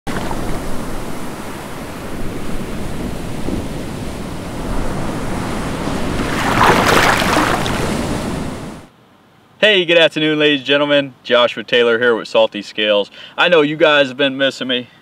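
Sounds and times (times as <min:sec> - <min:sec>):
ocean waves washing: 0:00.1 - 0:08.9.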